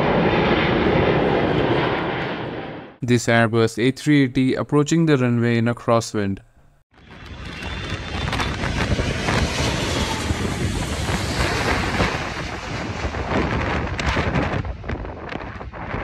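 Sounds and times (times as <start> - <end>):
jet engines passing overhead: 0.0 - 3.0, 7.0 - 16.0
wind buffeting microphone: 7.0 - 16.0.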